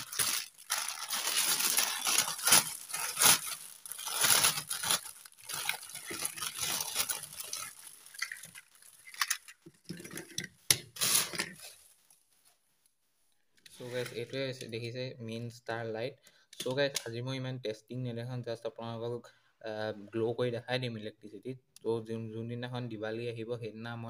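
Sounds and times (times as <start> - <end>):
plastic bag crinkling: 0.0 - 12.3.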